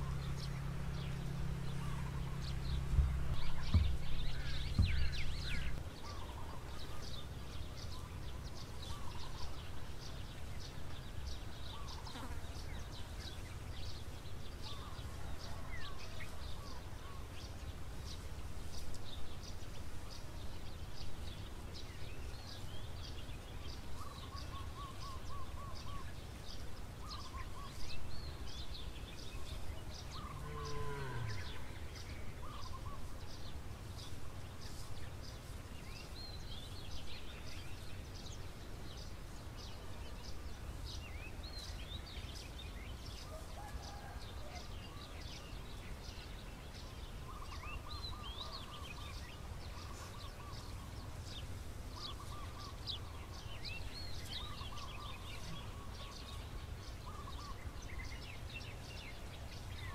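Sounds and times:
low trilling bird calls: 0.0s - 7.3s, 52.0s - 58.1s
low outdoor rumble: 0.0s - 59.9s
small birds chirping: 0.0s - 59.9s.

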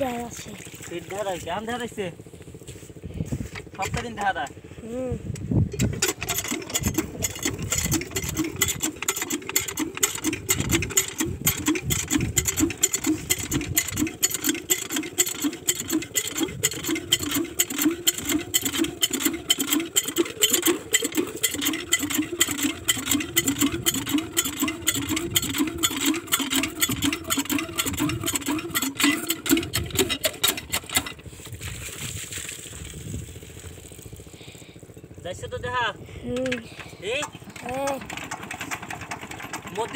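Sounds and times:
diesel engine idling: 5.9s - 31.4s.

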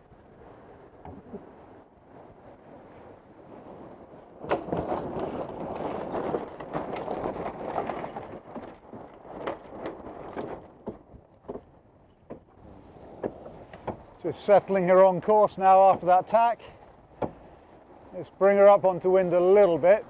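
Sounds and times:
sails flapping: 0.0s - 20.0s
water noise: 0.0s - 20.0s
wind: 0.0s - 20.0s
lines rattling: 4.4s - 14.5s.

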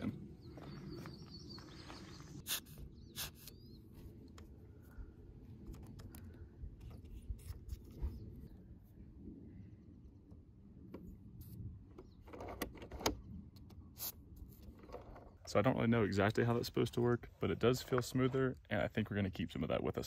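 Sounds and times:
bird chirping: 0.0s - 3.9s
low outdoor hum: 0.0s - 20.0s
squeeze tube puffing: 2.4s - 3.6s.

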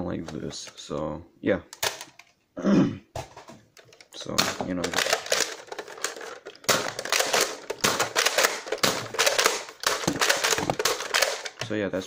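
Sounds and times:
toy blaster plastic clacks: 3.9s - 11.7s.

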